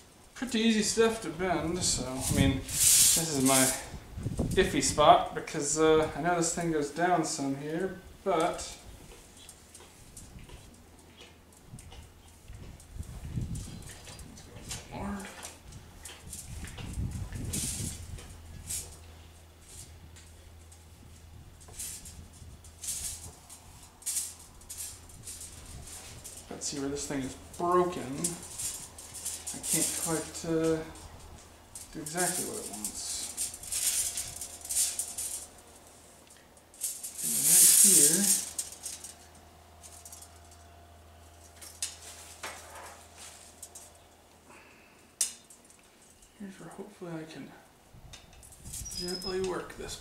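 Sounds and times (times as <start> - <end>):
steady low hum: 0.0 - 50.0
metal tubing scraping and rattling: 0.8 - 4.8, 8.4 - 44.1, 48.1 - 49.7
metal tubing clicks and scrapes: 45.2 - 46.4.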